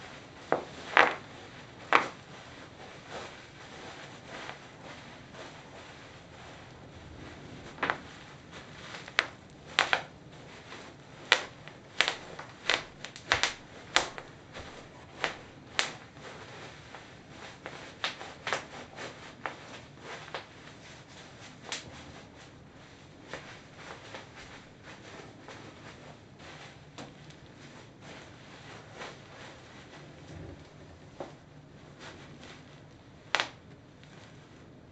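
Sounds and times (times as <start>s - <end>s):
plastic sheet crinkling: 0.1s - 30.2s
bubble wrap popping: 0.2s - 2.2s, 7.7s - 16.4s, 32.6s - 34.2s.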